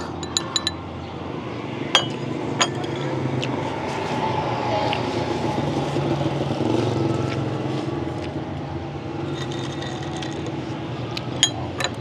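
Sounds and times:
tableware clinks: 0:00.0 - 0:00.9, 0:01.9 - 0:03.2, 0:11.4 - 0:12.0.

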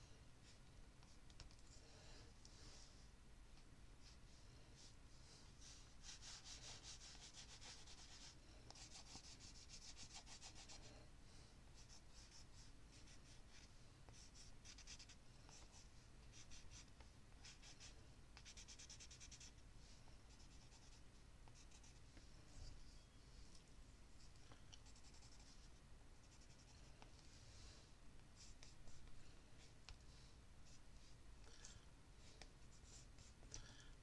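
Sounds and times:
stick scratching on paper: 0:11.8 - 0:19.6.

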